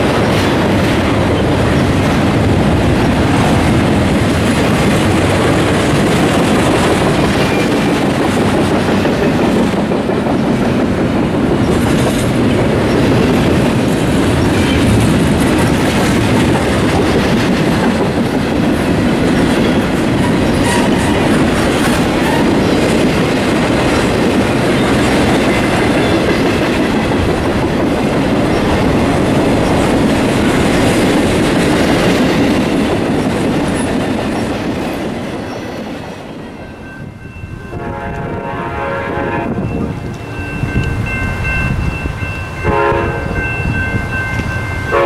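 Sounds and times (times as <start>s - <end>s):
train wheels rolling on rails: 0.0s - 45.0s
train horn: 20.6s - 21.3s, 22.2s - 22.7s, 37.7s - 39.9s, 42.6s - 43.5s.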